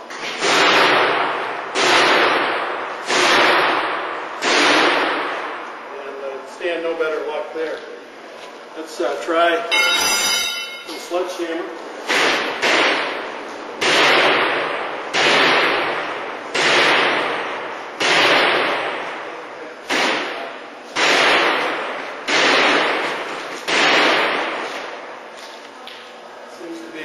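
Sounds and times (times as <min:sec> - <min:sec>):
sledgehammer striking glass: 0:09.7 - 0:11.1.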